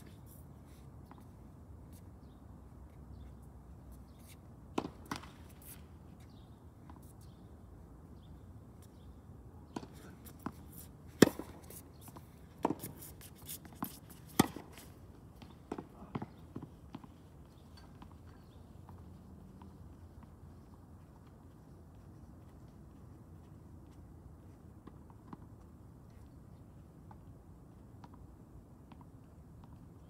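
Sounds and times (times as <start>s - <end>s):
tennis balls bouncing on court: 4.7s - 5.7s, 9.7s - 20.7s
tennis balls struck by rackets: 4.7s - 6.4s, 9.7s - 17.2s.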